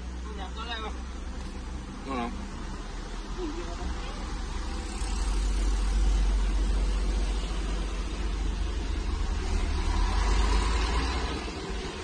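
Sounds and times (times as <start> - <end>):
car engine idling in cabin: 0.0 - 9.1.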